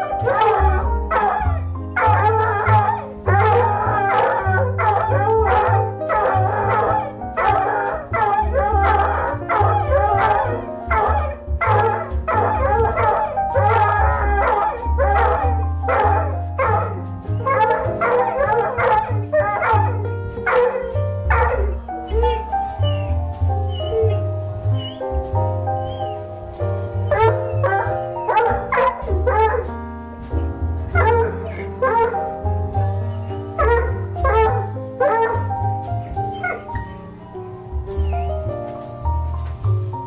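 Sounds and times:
puppies howling: 0:00.0 - 0:25.2, 0:25.8 - 0:29.7, 0:30.9 - 0:38.4
music with bass beat: 0:08.0 - 0:40.0.

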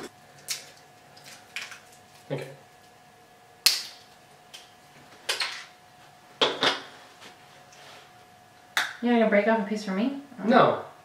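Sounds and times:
candy cane snapping: 0:03.6 - 0:04.0.

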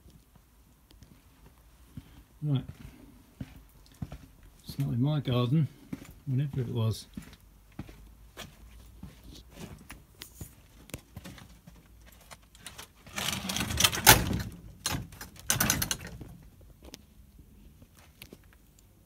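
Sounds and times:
footsteps: 0:00.0 - 0:13.1
rustling and scraping against fence: 0:08.7 - 0:16.9.

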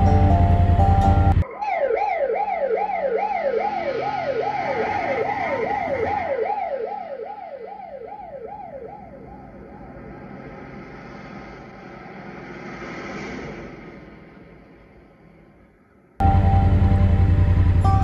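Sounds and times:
car engine and road noise: 0:00.0 - 0:01.5, 0:02.4 - 0:18.0
police siren wailing: 0:00.0 - 0:11.8.

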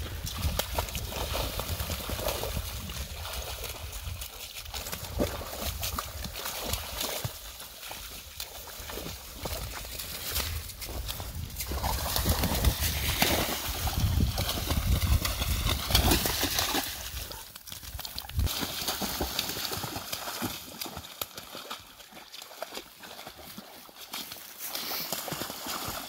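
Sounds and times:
splashing in water: 0:00.1 - 0:26.0
dogs crashing through ice: 0:11.6 - 0:21.0.

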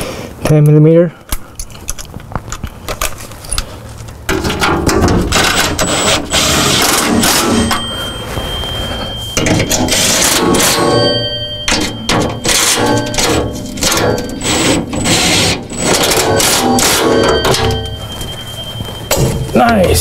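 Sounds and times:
impact driver hammering: 0:09.4 - 0:17.9.

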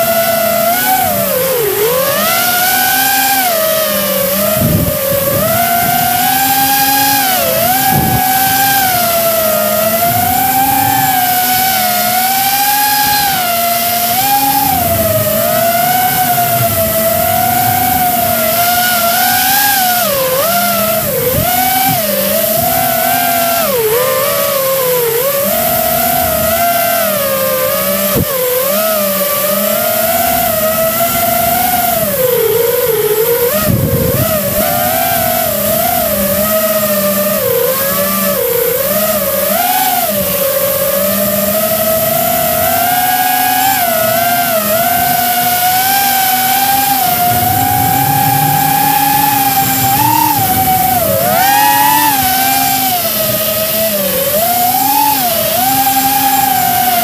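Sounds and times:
model aircraft motor whining: 0:00.0 - 0:57.0
wind rushing: 0:46.2 - 0:53.5
low rumble: 0:46.7 - 0:53.0.

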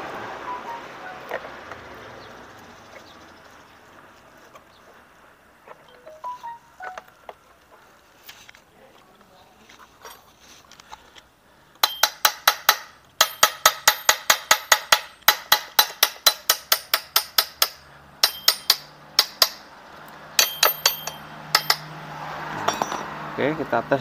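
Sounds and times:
metal rod tapping metal: 0:11.8 - 0:19.6, 0:20.4 - 0:21.9.

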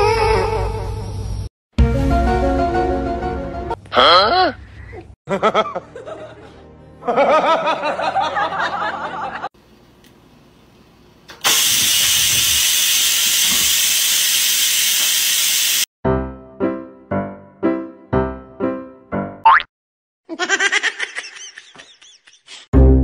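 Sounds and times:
rice cooker venting steam hiss: 0:11.3 - 0:15.9.

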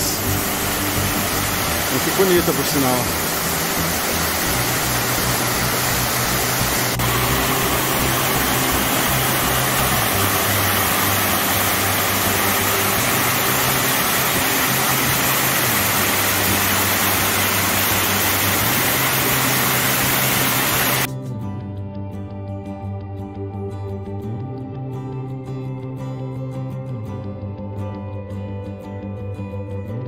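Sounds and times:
waterfall rushing: 0:00.0 - 0:21.1.

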